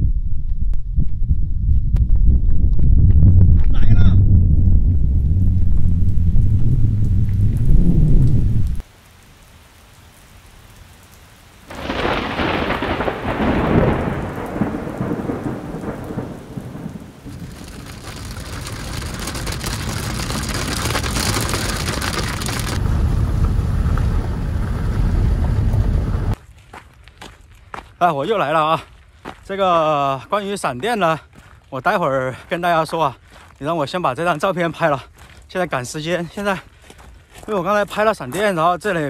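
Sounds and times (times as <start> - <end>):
low rumble: 0.0 - 8.8, 17.3 - 26.4
thunderclap rolling: 0.0 - 8.8, 11.7 - 26.4
heavy rain hissing: 5.5 - 26.4.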